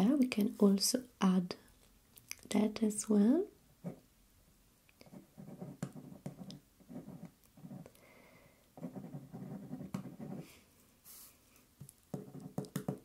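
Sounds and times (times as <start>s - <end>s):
pen writing on paper: 5.0s - 7.8s, 8.8s - 10.4s, 12.2s - 12.7s.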